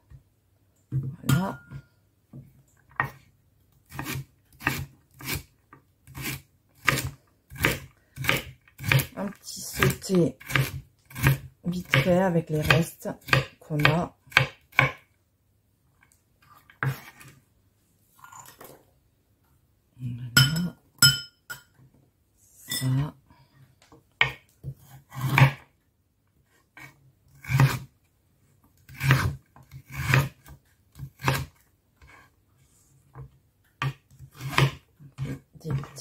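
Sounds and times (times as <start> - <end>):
knife cutting carrot on board: 3.8 - 15.0, 24.2 - 25.6, 26.8 - 27.9, 28.9 - 32.3, 33.8 - 36.0.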